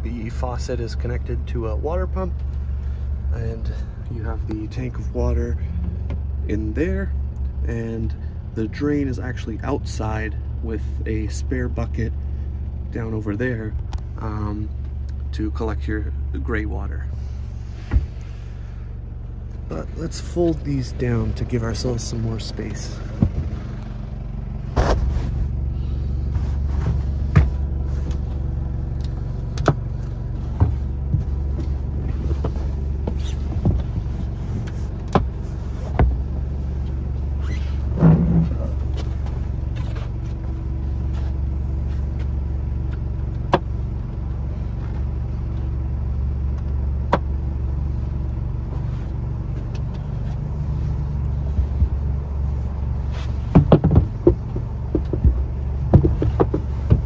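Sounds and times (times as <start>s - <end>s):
low engine hum: 0.0s - 57.0s
knocks and clicks of cushions: 17.8s - 18.2s, 23.0s - 23.9s, 24.7s - 25.4s, 26.3s - 40.5s, 51.2s - 52.3s, 53.0s - 57.0s.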